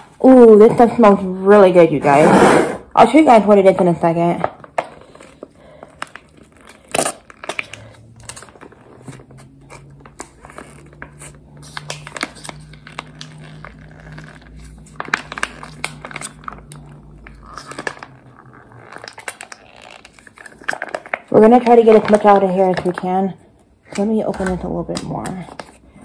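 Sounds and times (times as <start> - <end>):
crinkly package rustling: 4.4 - 23.0.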